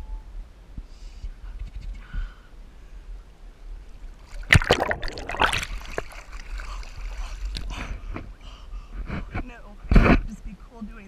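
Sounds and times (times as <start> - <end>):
river water splashing: 4.1 - 7.7.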